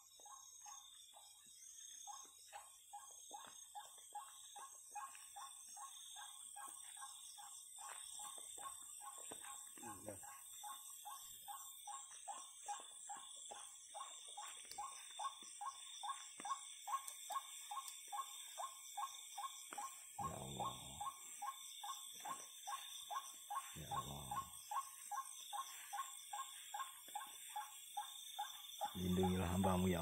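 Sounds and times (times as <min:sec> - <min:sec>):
insect chorus: 0:00.0 - 0:30.0
night animal calling: 0:00.0 - 0:30.0.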